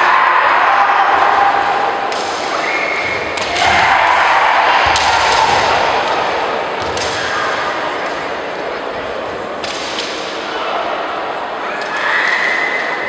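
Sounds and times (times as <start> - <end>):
fencers shouting: 0.0 - 8.0
bamboo swords striking: 2.0 - 2.7.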